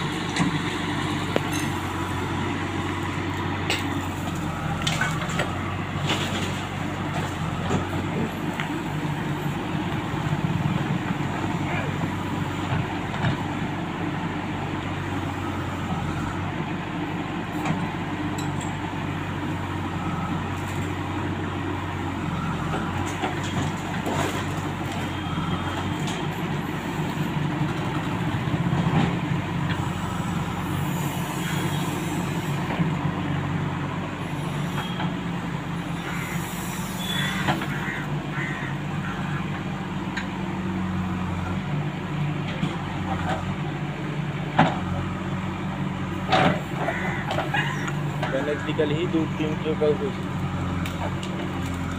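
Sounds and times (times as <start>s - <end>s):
diesel engine running under load: 0.0s - 51.9s.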